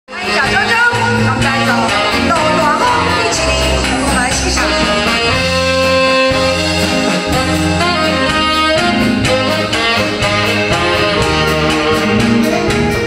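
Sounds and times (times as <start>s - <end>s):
drums: 0.1s - 13.0s
keyboard: 0.1s - 13.0s
saxophone melody: 0.1s - 13.0s.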